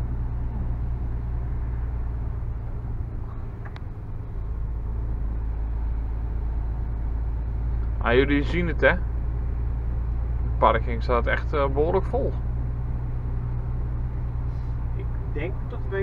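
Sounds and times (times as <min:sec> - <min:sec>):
truck engine droning: 0:00.0 - 0:16.0.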